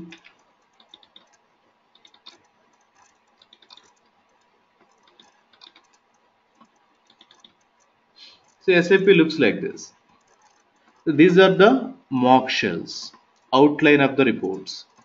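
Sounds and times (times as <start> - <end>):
faint computer mouse clicks: 0.0 - 8.6.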